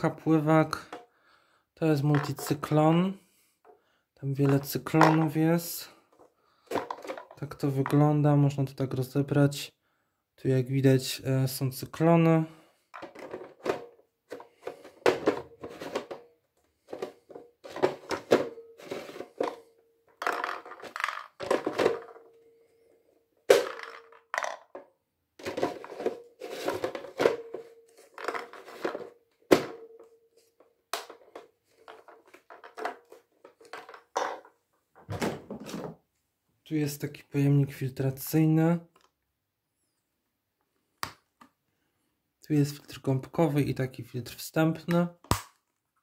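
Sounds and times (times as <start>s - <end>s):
plastic parts knocking and clicking: 0.7s - 1.1s, 2.0s - 2.7s, 3.6s - 5.5s, 6.1s - 8.1s, 12.9s - 22.6s, 23.5s - 36.0s, 44.8s - 45.8s.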